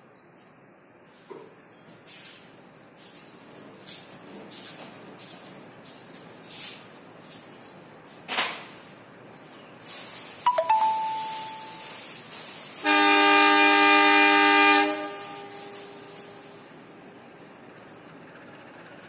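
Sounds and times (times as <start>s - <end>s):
hiss: 8.1s - 10.5s, 11.7s - 16.9s
metallic dings: 10.5s - 12.0s
locomotive horn chord: 12.8s - 16.6s.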